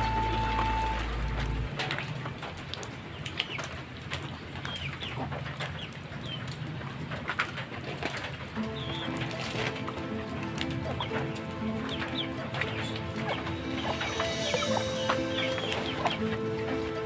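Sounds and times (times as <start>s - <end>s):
birds chirping: 8.6s - 17.0s.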